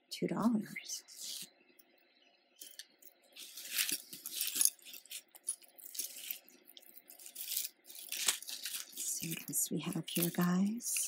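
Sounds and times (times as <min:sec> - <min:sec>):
metal chains clinking: 0:02.6 - 0:11.0.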